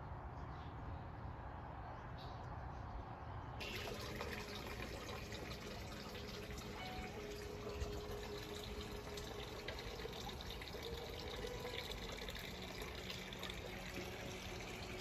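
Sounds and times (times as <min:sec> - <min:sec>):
running water trickling: 0:03.6 - 0:15.0.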